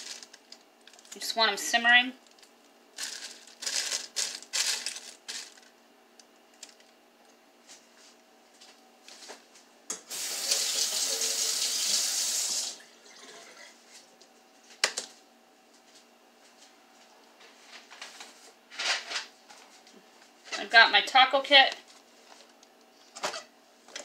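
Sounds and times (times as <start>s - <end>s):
plastic bag crinkling: 0.0s - 1.2s, 2.2s - 5.8s.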